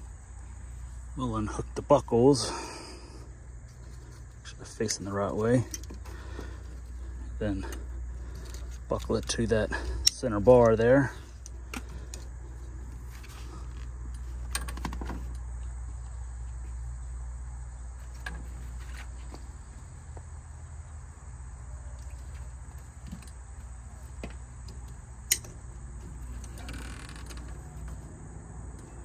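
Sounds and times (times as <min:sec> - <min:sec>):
high insect drone: 0:00.0 - 0:29.0
low hum: 0:00.0 - 0:29.0
strap buckles clicking and rattling: 0:05.0 - 0:15.4, 0:21.9 - 0:28.1.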